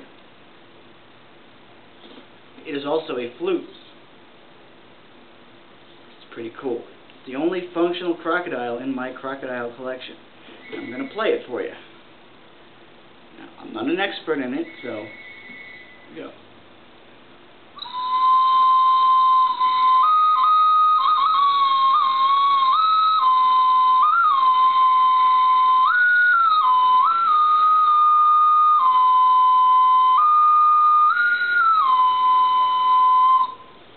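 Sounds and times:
clay flute long notes: 14.6s - 16.1s, 17.8s - 33.8s.

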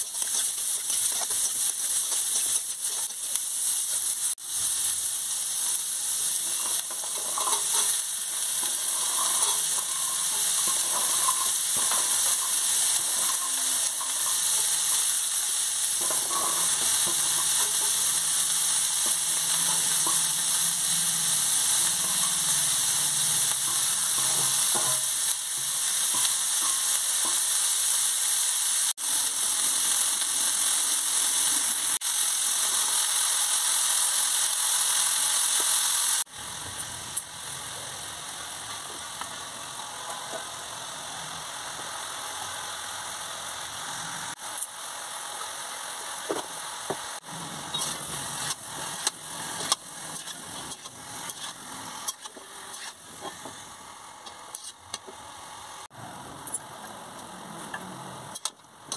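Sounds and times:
shallots sizzling in oil: 0.0s - 58.9s
metal spatula scraping wok: 5.6s - 27.4s, 47.2s - 55.1s.

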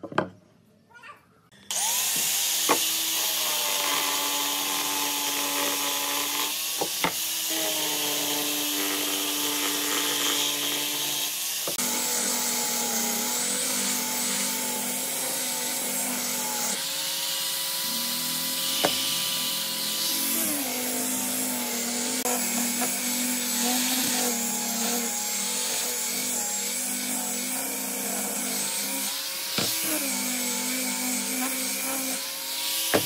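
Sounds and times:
grinder motor whine: 1.6s - 33.0s
sanding disc hissing on wood: 1.7s - 33.0s.

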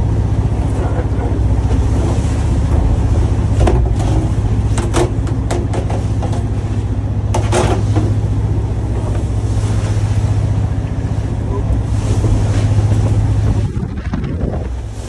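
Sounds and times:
boat diesel engine droning: 0.0s - 15.0s
sea noise: 0.0s - 15.0s
wind: 0.0s - 15.0s
sharp knocks: 3.6s - 6.5s.

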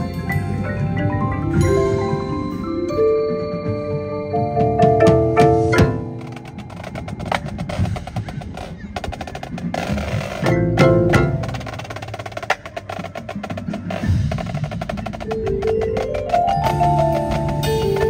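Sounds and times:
percussion ensemble playing: 0.0s - 18.0s.

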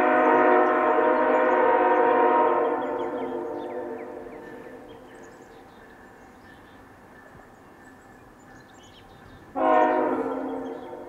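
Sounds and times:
locomotive horn: 0.0s - 5.0s, 9.5s - 11.0s.

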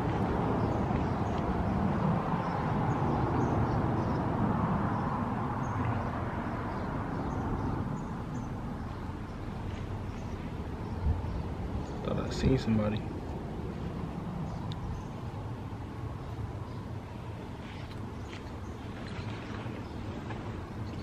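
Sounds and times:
steady low rumble: 7.0s - 21.0s.

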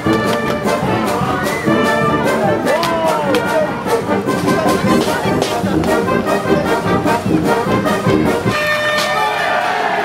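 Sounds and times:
steady drum beat: 0.0s - 8.8s
marching brass band playing: 0.0s - 10.0s.

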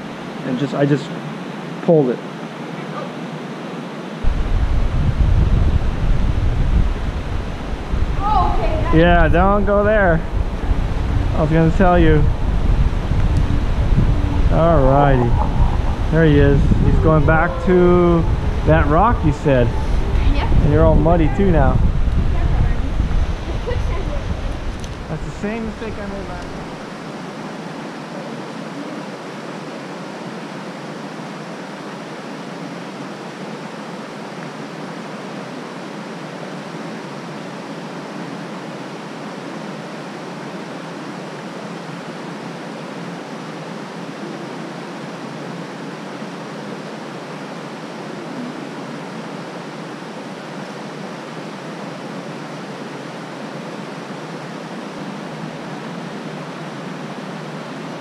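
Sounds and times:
creek water rushing: 0.0s - 58.0s.

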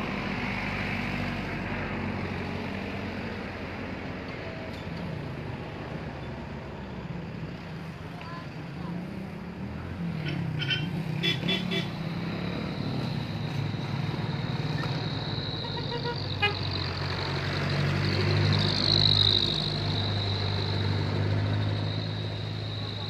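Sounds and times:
vehicle engine hum and whine: 0.0s - 23.0s
car horn beeps: 10.3s - 12.0s, 15.6s - 16.7s.

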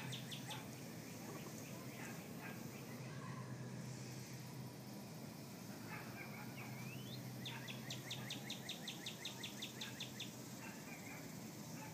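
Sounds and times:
bird chirping: 0.0s - 1.6s, 6.3s - 10.4s.

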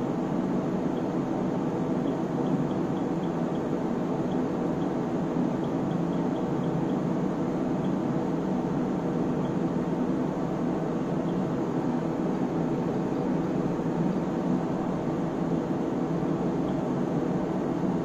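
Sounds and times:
cooling fans whirring: 0.0s - 18.0s.

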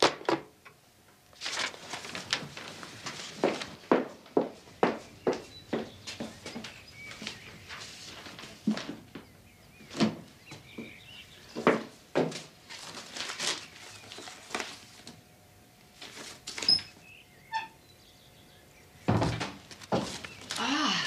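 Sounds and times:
paper rustling: 1.3s - 4.2s, 6.0s - 9.2s, 11.6s - 15.2s, 15.9s - 17.0s, 19.4s - 20.7s.

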